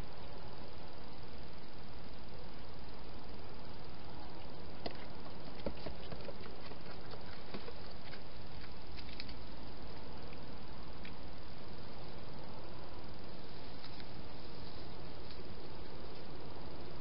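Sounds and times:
steady hiss: 0.0 - 17.0
hedgehog clicks and scrapes: 4.8 - 9.4.

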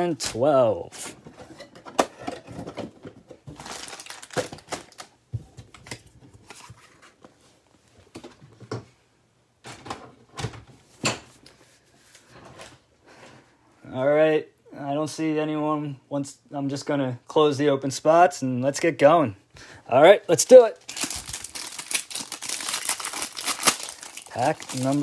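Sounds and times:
plastic wrapper crinkling: 3.5 - 5.2, 20.5 - 25.0.

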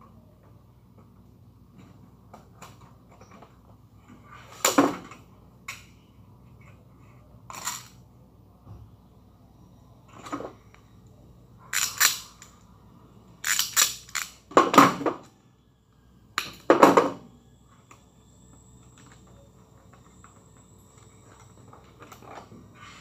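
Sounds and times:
wires and plastic parts clattering: 11.7 - 12.6, 13.4 - 15.3.

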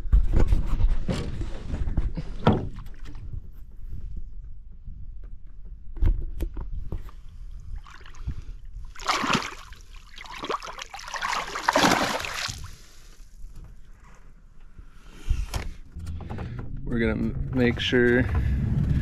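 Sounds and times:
water splashing and sloshing: 2.3 - 3.4, 6.9 - 13.9.

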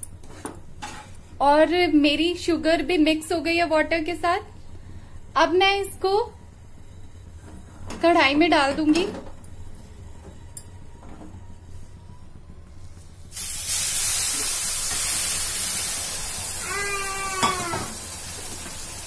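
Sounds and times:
syrup sizzling on hot flour: 13.3 - 19.0
brief high-pitched cry: 16.6 - 18.0.

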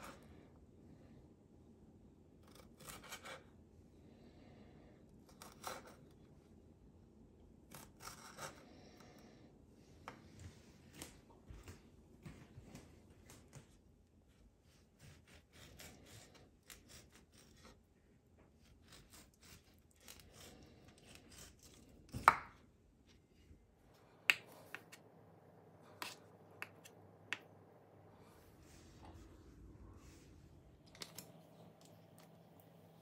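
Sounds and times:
knife scraping through avocado: 7.7 - 8.6, 15.0 - 17.8, 18.6 - 22.3.

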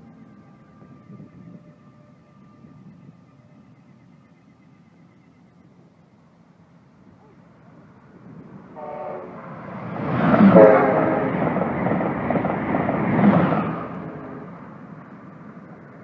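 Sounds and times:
train horn blasts: 0.0 - 3.6, 8.7 - 9.5, 10.4 - 11.6, 13.8 - 14.7
electric train passing at speed: 0.0 - 16.0.

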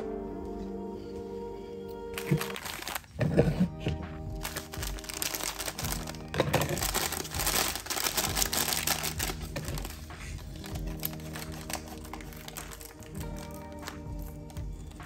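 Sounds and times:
background music: 0.0 - 15.0
foil pouch crinkling: 2.2 - 3.7, 4.4 - 14.5.

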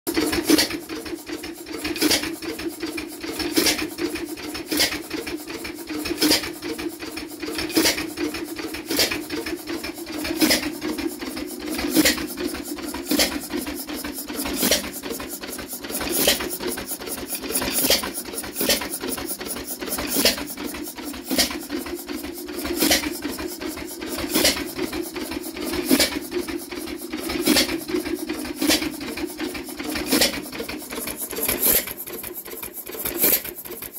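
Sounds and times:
hit-and-miss engine running: 0.1 - 33.9.

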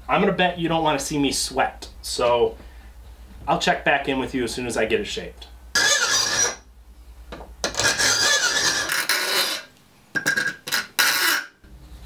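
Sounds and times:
file rasping on steel: 5.8 - 6.6, 7.7 - 9.7.

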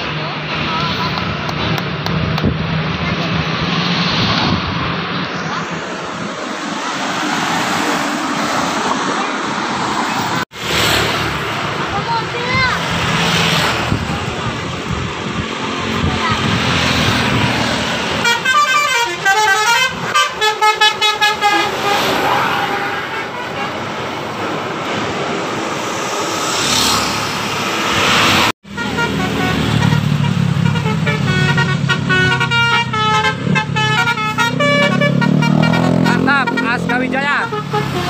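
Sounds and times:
bus engines running: 0.0 - 38.0
passing traffic: 0.0 - 38.0
musical bus horn tones: 18.2 - 23.8, 28.7 - 38.0.

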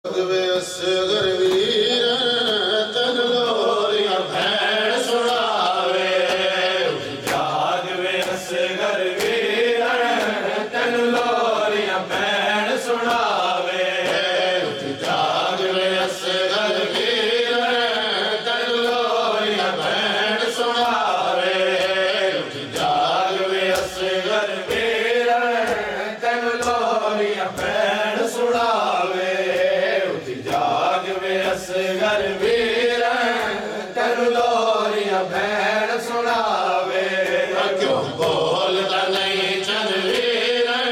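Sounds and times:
man singing into a microphone: 0.0 - 9.0
group of men singing: 0.1 - 40.9
hand slaps on chest: 7.2 - 8.6, 9.2 - 9.5, 25.6 - 26.0.

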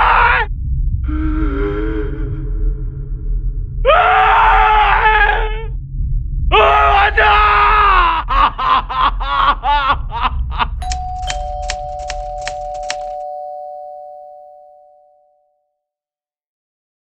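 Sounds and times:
person screaming: 6.6 - 8.4
typewriter key strikes: 10.8 - 13.4
two-note chime: 10.8 - 15.5.

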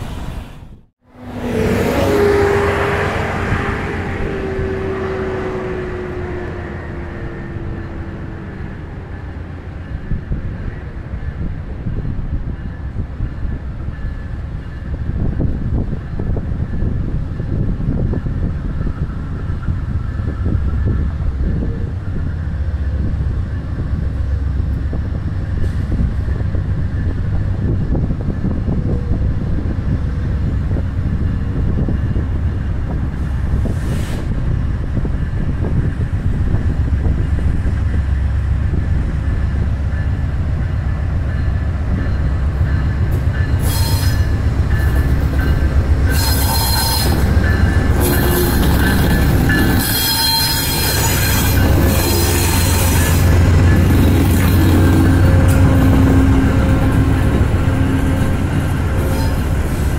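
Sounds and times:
diesel locomotive engine rumble: 0.0 - 59.9
train wheels squealing: 40.8 - 59.9.

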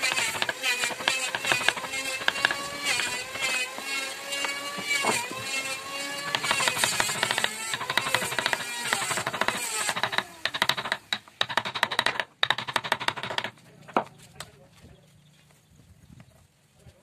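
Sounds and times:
hammer tapping on chisel: 0.0 - 5.4, 6.2 - 14.1.

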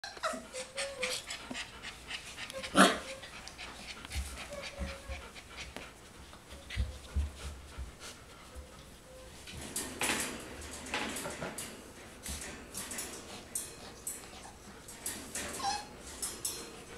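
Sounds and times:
puppy whining: 0.0 - 5.8, 13.8 - 16.1
puppies panting: 0.0 - 9.4, 11.3 - 16.9.

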